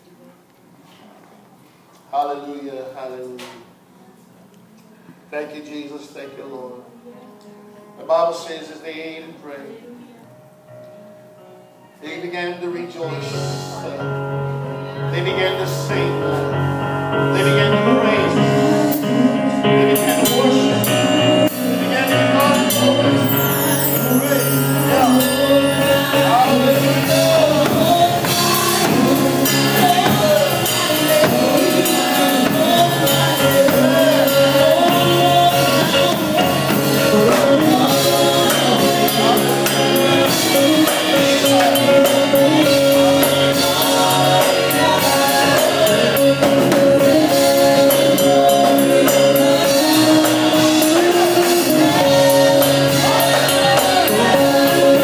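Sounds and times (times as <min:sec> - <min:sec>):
gospel singing over instruments: 0:12.0 - 0:55.0.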